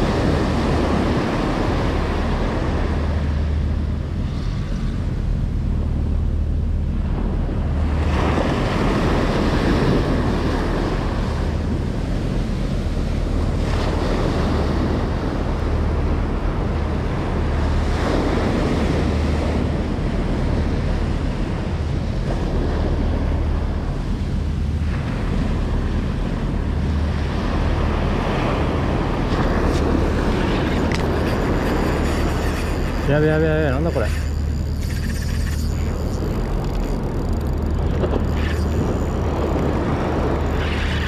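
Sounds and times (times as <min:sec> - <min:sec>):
ocean waves breaking on beach: 0:00.0 - 0:41.0
wind buffeting microphone: 0:00.0 - 0:41.0.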